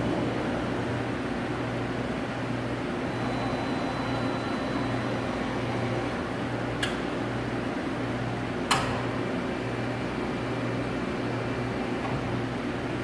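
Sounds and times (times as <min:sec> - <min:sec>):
machine hum with dipping drone: 0:00.0 - 0:13.0
faint high whine: 0:03.1 - 0:06.1.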